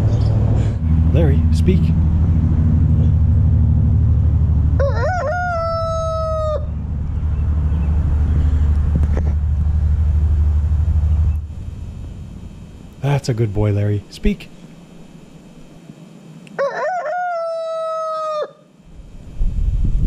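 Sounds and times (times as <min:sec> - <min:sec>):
steady low drone: 0:00.0 - 0:15.8
rooster crowing: 0:04.6 - 0:07.0, 0:16.5 - 0:18.8.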